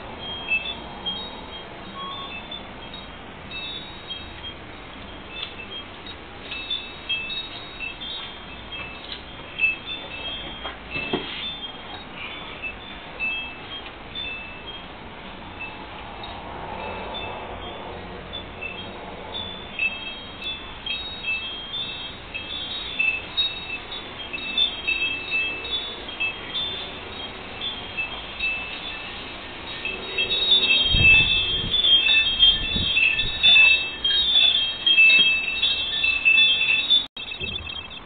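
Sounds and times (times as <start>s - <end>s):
wind chime tinkling: 0.0s - 38.0s
wind rumble on microphone: 29.7s - 35.1s.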